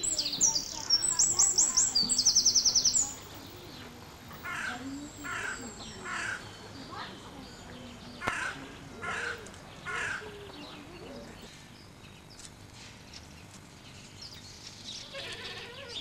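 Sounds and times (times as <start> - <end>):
faint small bird chirps: 0.0 - 3.9
crow cawing: 4.4 - 6.5, 8.2 - 10.4.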